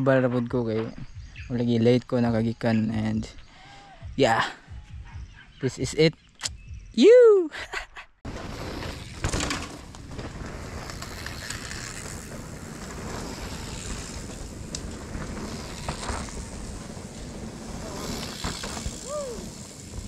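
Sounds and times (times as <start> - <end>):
bike trail noise: 8.3 - 20.0
wind rushing over microphone: 8.3 - 20.0
bike knocks: 8.5 - 20.0.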